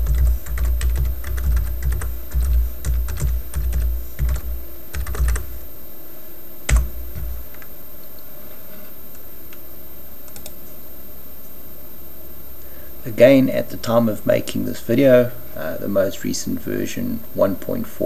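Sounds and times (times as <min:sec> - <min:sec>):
computer keyboard typing: 0:00.0 - 0:05.6, 0:06.7 - 0:07.7, 0:10.3 - 0:10.6.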